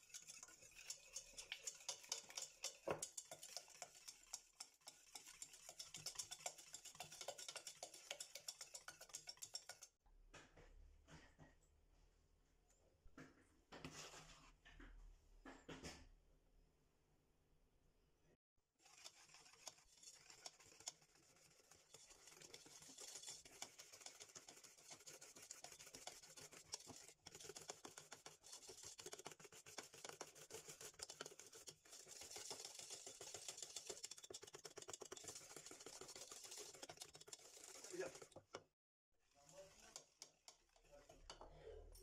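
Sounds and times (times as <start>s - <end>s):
whisk beating in metal saucepan: 0.0s - 10.0s, 18.8s - 42.0s.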